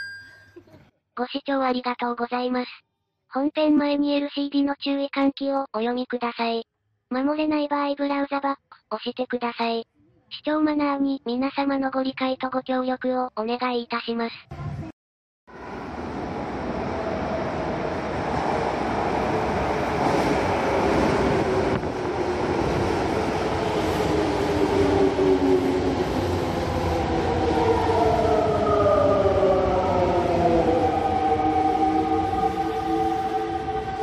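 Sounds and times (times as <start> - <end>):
subway train running noise: 15.5 - 34.0.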